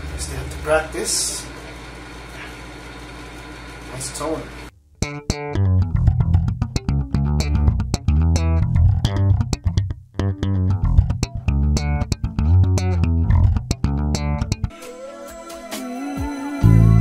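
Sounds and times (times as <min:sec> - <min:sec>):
slap bass guitar solo: 0:05.0 - 0:14.8, 0:16.6 - 0:17.0.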